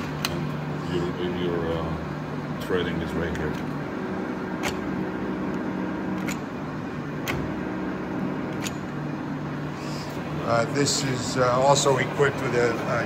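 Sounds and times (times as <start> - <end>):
lathe humming: 0.0 - 13.0
lathe lever clicks: 4.6 - 4.9, 6.2 - 6.5, 7.2 - 7.5, 8.5 - 8.9.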